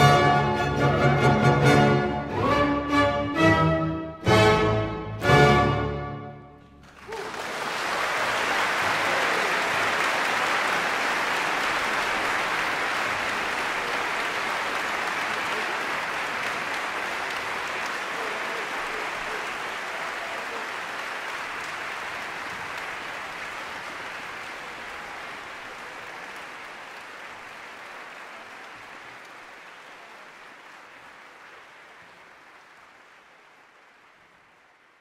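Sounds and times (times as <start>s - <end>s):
audience applauding: 6.6s - 35.0s.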